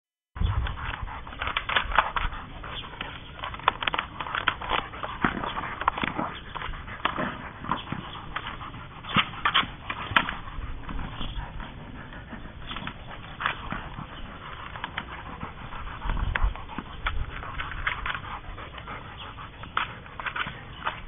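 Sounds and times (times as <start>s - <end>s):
dog panting: 0.4s - 21.0s
teeth clicking on ball: 0.4s - 21.0s.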